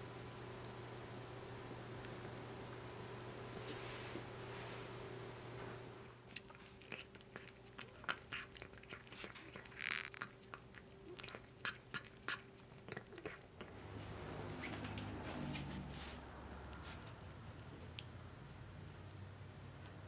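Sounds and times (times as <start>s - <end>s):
cat crunching food: 6.2s - 18.2s.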